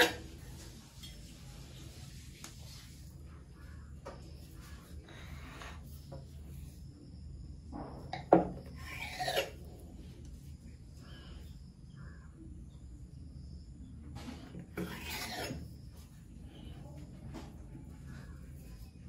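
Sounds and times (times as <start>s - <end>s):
knife blade scraping board: 8.8s - 9.6s, 14.8s - 15.6s.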